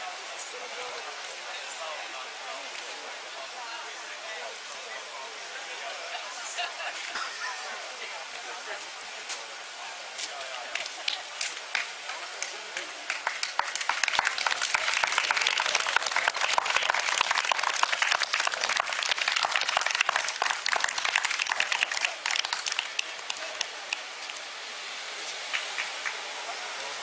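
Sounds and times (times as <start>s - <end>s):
crowd clapping: 10.3s - 24.6s, 25.4s - 26.5s.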